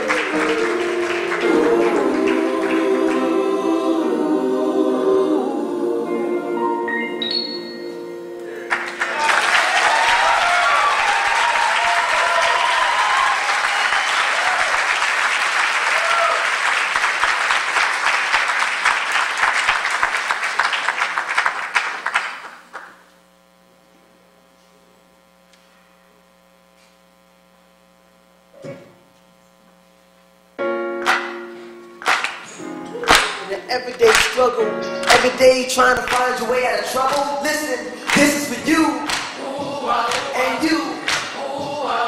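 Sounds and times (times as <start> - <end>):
audience applauding and cheering: 0.0 - 3.6, 8.4 - 23.0, 32.0 - 42.0
electrical hum: 22.5 - 42.0.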